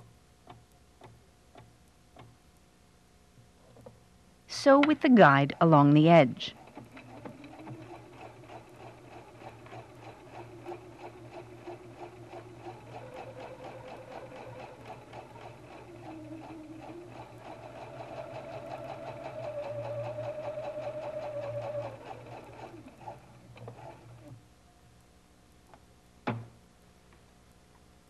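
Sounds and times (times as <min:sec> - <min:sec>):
sewing machine running: 0:06.5 - 0:24.3.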